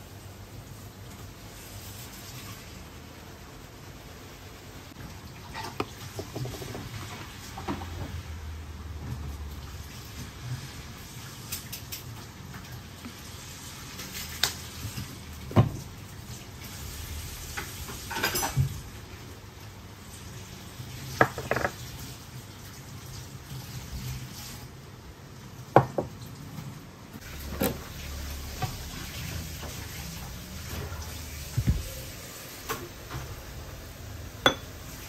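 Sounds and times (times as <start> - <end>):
ceramic dishes clinking on wood: 21.2 - 21.8, 34.4 - 34.7.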